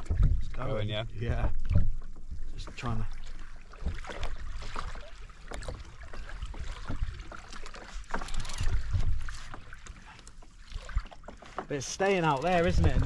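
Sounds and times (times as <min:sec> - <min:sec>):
water slapping against kayak hull: 0:00.0 - 0:13.0.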